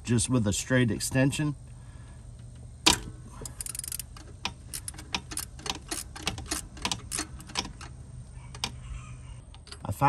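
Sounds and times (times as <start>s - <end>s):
ratchet clicking: 2.9s - 8.0s.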